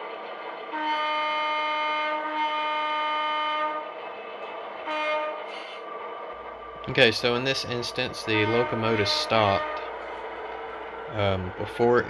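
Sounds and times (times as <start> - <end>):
model locomotive horn blasts: 0.7 - 3.8, 4.9 - 5.5, 7.8 - 10.1
model locomotive engine sound: 4.9 - 12.0.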